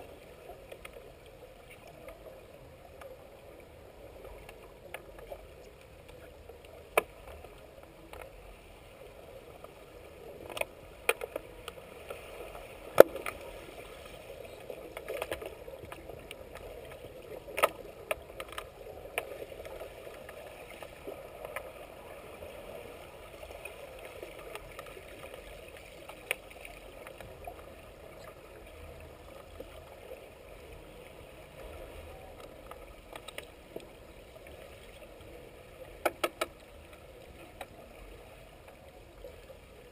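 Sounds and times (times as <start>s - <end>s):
underwater watery rush: 0.0s - 39.9s
sticks and puck clacking underwater: 12.9s - 13.5s, 14.5s - 21.7s, 35.9s - 36.8s.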